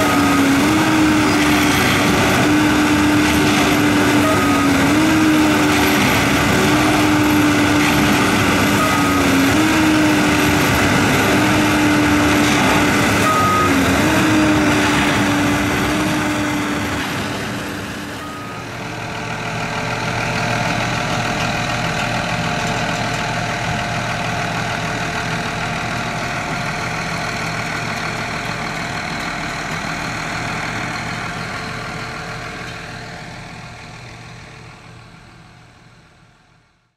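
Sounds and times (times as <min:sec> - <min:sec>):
machine engine whine: 0:00.0 - 0:36.1
low steady engine: 0:00.0 - 0:36.9
short beeps: 0:13.2 - 0:13.9, 0:18.2 - 0:18.9.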